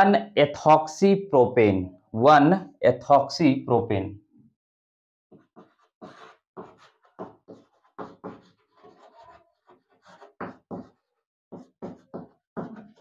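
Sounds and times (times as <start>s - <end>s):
chalk writing on a blackboard: 5.3s - 13.0s.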